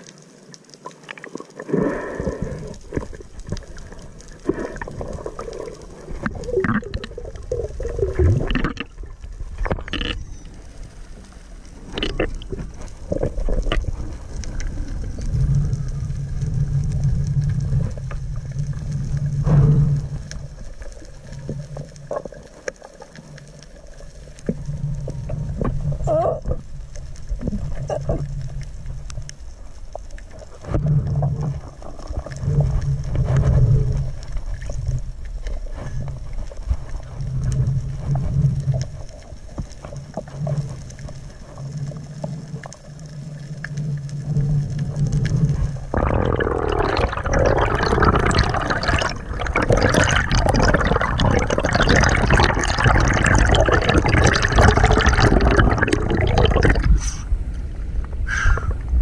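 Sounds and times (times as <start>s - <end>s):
water gurgling and sloshing: 0.0s - 59.0s
dense water splashing: 1.0s - 10.2s, 44.2s - 57.5s.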